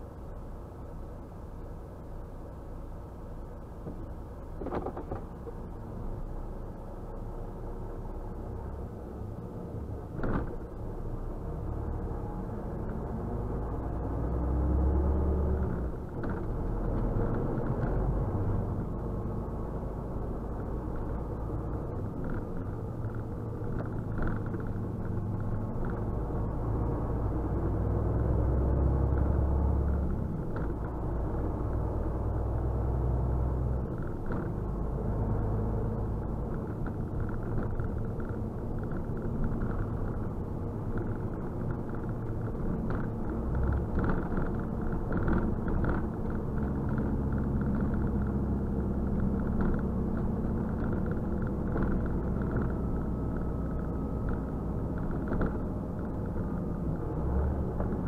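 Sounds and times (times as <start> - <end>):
road noise: 0.0 - 58.0
truck diesel engine rumble: 0.0 - 58.0.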